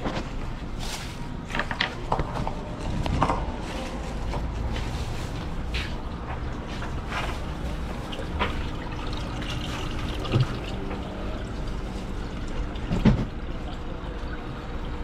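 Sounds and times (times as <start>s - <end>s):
water trickling and bubbling: 7.5s - 15.0s.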